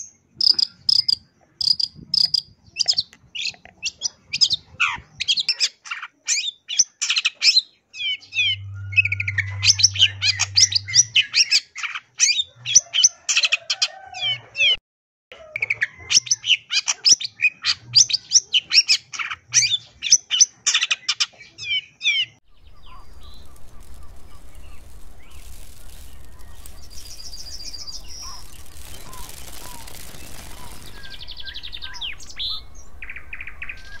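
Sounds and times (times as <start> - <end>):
bird singing high chirps: 0.0 - 12.6, 17.3 - 34.0
steady low hiss: 8.5 - 11.2, 22.5 - 34.0
faint bird calls: 21.6 - 34.0.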